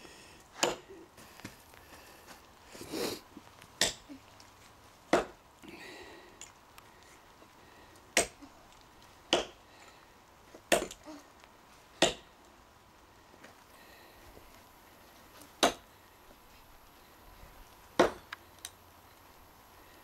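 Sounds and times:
tomahawk chopping into log: 0:05.1 - 0:05.4, 0:09.3 - 0:09.6, 0:12.0 - 0:12.2, 0:18.0 - 0:18.2.

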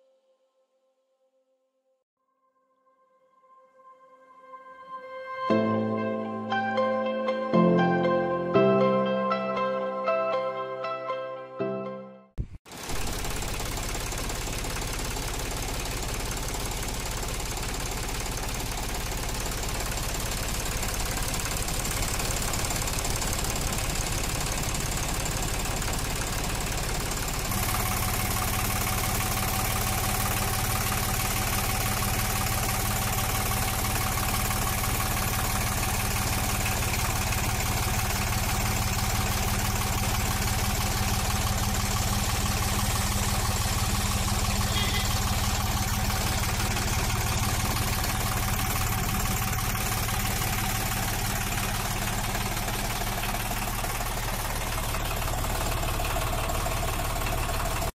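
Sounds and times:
tractor diesel engine idling: 0:12.7 - 0:57.9.

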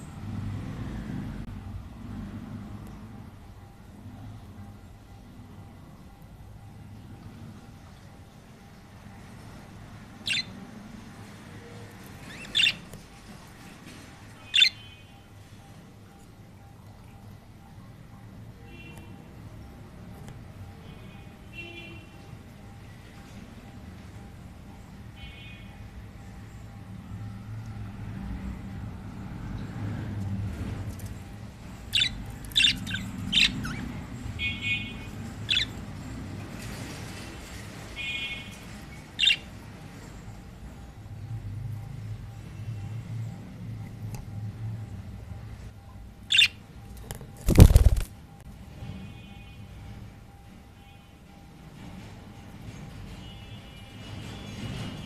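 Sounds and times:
buzzy bird chatter: 0:10.2 - 0:10.6, 0:12.1 - 0:12.9, 0:31.0 - 0:36.3, 0:38.8 - 0:39.6, 0:46.3 - 0:46.6
budgerigar calling: 0:10.3 - 0:10.5, 0:12.3 - 0:12.8, 0:31.9 - 0:33.9, 0:39.2 - 0:39.4, 0:46.3 - 0:46.6.

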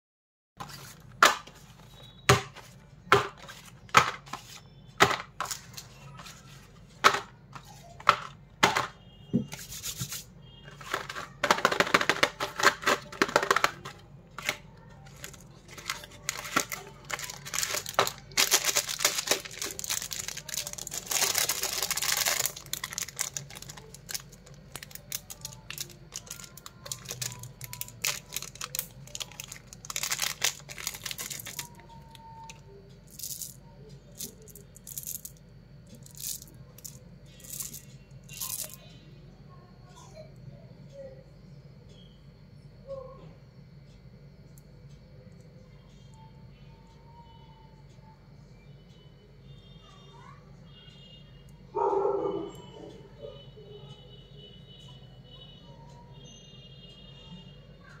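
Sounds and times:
packaging crinkling and tearing: 0:10.8 - 0:31.8
candy wrapper tearing: 0:15.0 - 0:32.1.

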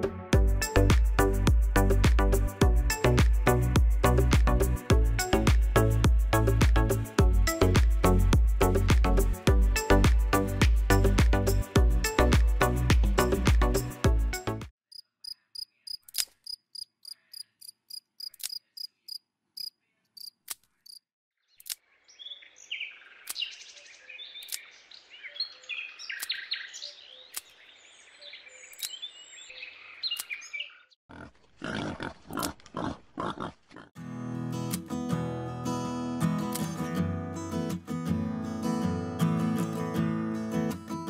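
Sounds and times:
high regular chirping: 0:14.9 - 0:21.0
small clicks: 0:16.0 - 0:16.4, 0:18.2 - 0:18.6, 0:21.6 - 0:21.8, 0:24.4 - 0:24.6, 0:28.7 - 0:29.0, 0:30.1 - 0:30.4.

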